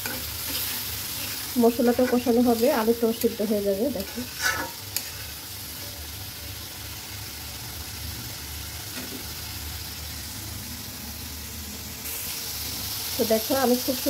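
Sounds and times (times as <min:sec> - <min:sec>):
spatula scraping a pan: 0:00.0 - 0:05.5
curry sizzling in a pan: 0:00.0 - 0:14.0.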